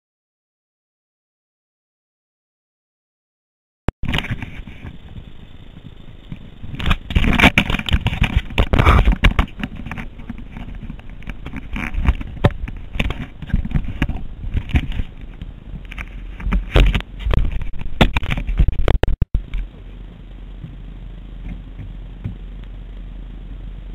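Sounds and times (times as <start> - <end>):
camera handling scraping and knocks: 4.0 - 5.0, 6.8 - 19.0.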